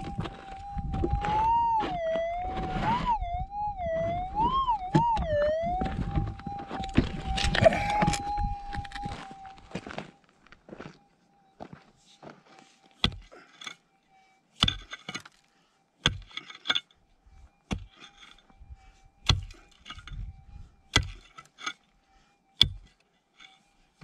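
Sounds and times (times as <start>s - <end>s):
pick striking stony ground: 13.0s - 13.8s, 14.6s - 15.4s, 16.0s - 16.9s, 17.6s - 18.5s, 19.2s - 20.3s, 20.9s - 21.8s, 22.6s - 23.0s.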